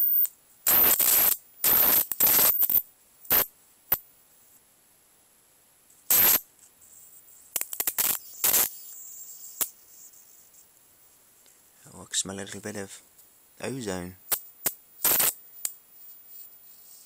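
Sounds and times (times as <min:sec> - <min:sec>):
electric arcs crackling: 0:00.0 - 0:04.1, 0:06.0 - 0:06.5, 0:07.5 - 0:09.8, 0:13.6 - 0:15.8.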